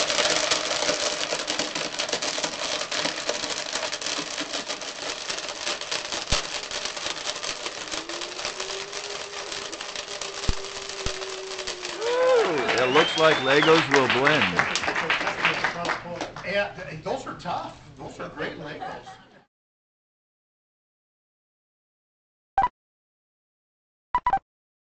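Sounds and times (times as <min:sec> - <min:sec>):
blender motor tone: 0:00.0 - 0:14.6
plastic pieces clattering in blender: 0:00.0 - 0:14.6.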